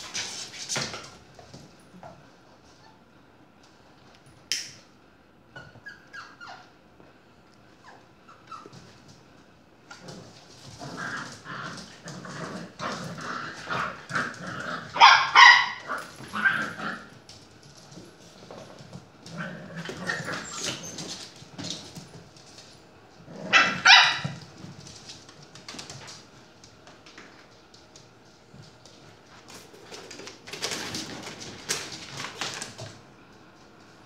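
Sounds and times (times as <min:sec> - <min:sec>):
puppies yapping and barking: 0:05.6 - 0:06.8, 0:14.9 - 0:16.8, 0:20.0 - 0:21.2.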